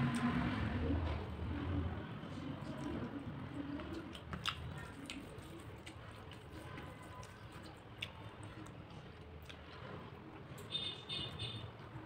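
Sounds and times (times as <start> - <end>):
wet chewing smacks: 3.7 - 6.5.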